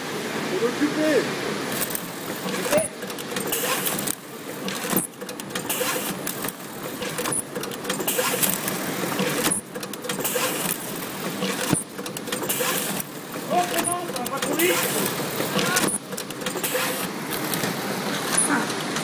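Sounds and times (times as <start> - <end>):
machine hum: 1.3 - 19.0
packing machine clattering: 1.7 - 19.0.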